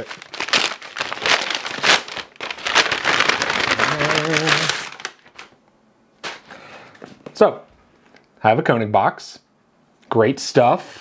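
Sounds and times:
envelope tearing and crinkling: 0.0s - 5.5s
man humming: 3.6s - 4.9s.

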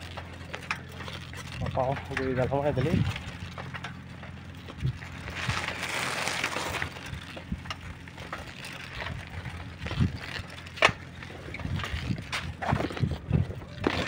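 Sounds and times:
footsteps on gravel: 0.0s - 14.0s.

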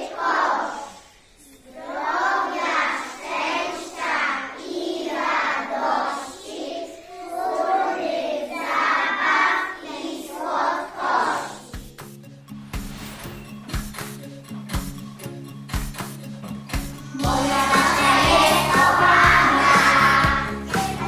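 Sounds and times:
children's choir singing: 0.0s - 12.0s, 17.1s - 21.0s.

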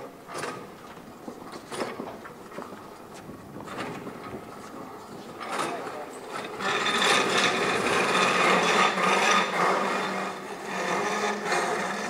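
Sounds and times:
plane scraping across concrete floor: 1.4s - 12.0s.

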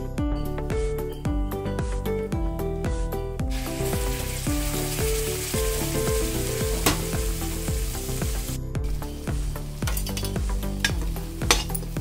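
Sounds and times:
hot oil sizzling in a wok: 3.5s - 12.0s
sharp oil pop: 6.7s - 7.2s.

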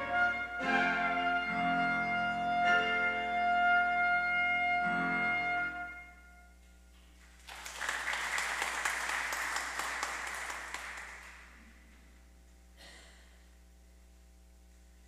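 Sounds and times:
congregation applauding: 7.2s - 11.6s.

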